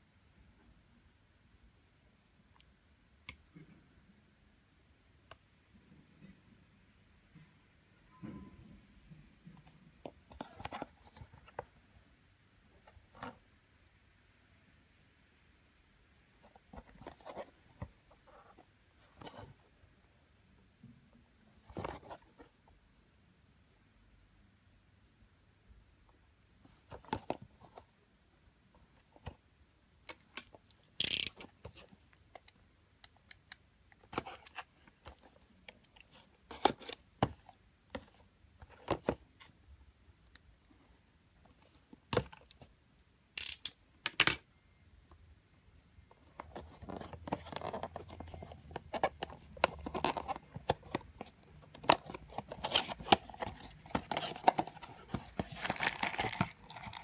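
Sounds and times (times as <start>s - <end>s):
cardboard and plastic rustling: 46.1s - 57.0s.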